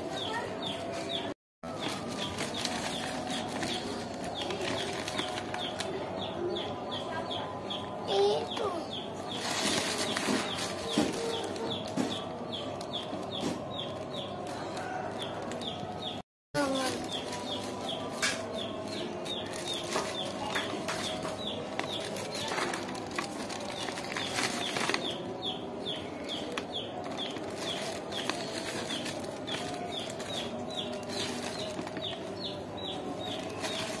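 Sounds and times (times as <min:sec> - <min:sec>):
small birds chirping: 0:00.1 - 0:34.0
plastic bag crackling: 0:01.6 - 0:06.0, 0:08.1 - 0:12.0, 0:16.6 - 0:34.0.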